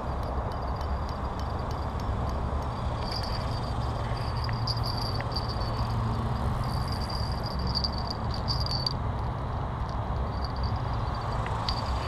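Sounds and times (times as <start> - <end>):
low outdoor rumble: 0.0 - 12.0
insect trilling: 2.7 - 9.0.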